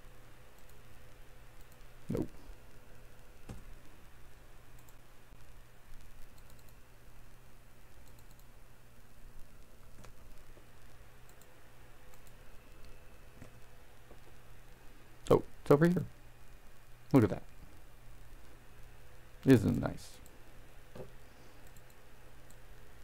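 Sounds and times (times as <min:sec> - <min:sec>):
faint steady hum: 0:00.0 - 0:23.0
computer mouse clicks: 0:00.6 - 0:00.8, 0:01.6 - 0:01.9, 0:04.8 - 0:05.0, 0:05.9 - 0:06.8, 0:08.0 - 0:08.5, 0:09.4 - 0:10.5, 0:11.2 - 0:13.7, 0:20.2 - 0:22.6.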